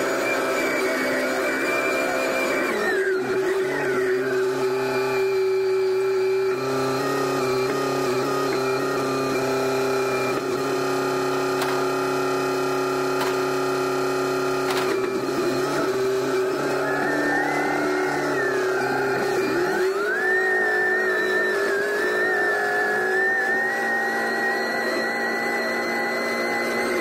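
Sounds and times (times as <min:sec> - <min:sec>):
diesel engine running: 0:00.0 - 0:27.0
hydraulics working: 0:00.0 - 0:27.0
high whine: 0:14.7 - 0:27.0.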